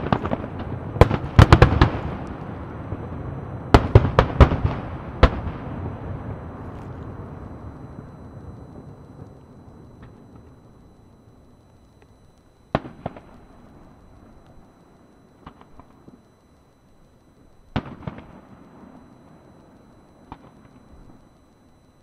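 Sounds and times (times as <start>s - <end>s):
faint firework pops: 20.3s - 20.8s.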